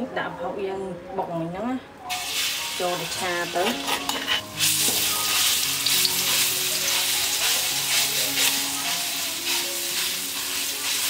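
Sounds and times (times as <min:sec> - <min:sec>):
fish paste sizzling in oil: 0:02.1 - 0:11.0
metal spatula scraping wok: 0:02.2 - 0:11.0.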